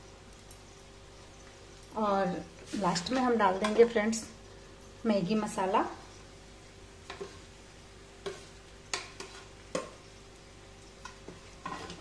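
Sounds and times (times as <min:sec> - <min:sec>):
faint frying sizzle: 0:00.0 - 0:12.0
metal spatula scraping a pan: 0:07.1 - 0:07.5, 0:08.2 - 0:09.6, 0:11.0 - 0:12.0.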